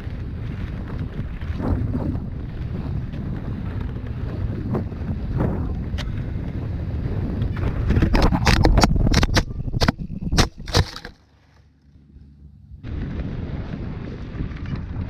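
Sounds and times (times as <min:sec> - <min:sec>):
wind rush: 0:00.0 - 0:11.0
tyre rumble on dirt trail: 0:00.0 - 0:11.6
camera tumbling and clattering: 0:07.4 - 0:11.6.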